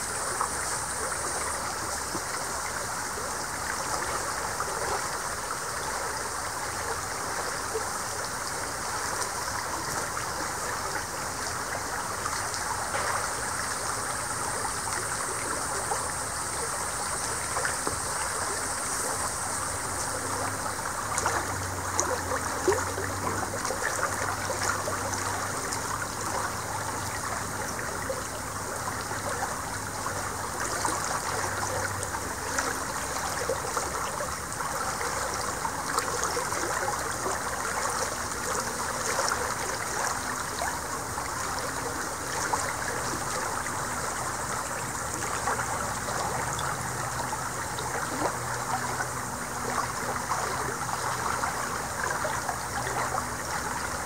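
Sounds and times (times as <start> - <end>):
river rippling over stones: 0.0 - 54.0.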